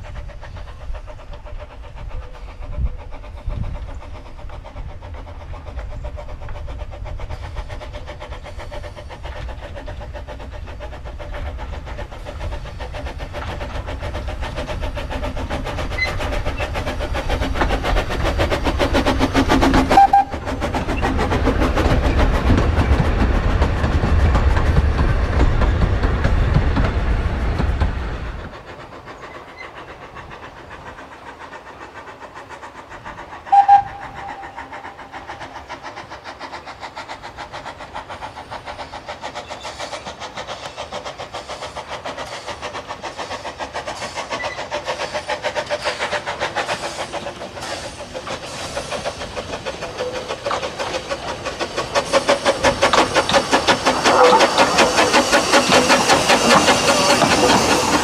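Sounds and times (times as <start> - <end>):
steam locomotive exhaust beats: 0.0 - 58.0
steam whistle blast: 19.9 - 20.4, 33.5 - 34.6.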